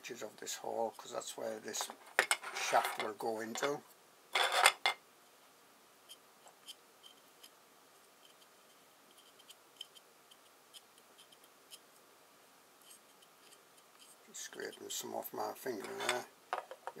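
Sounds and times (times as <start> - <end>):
small ticks: 8.2 - 12.0.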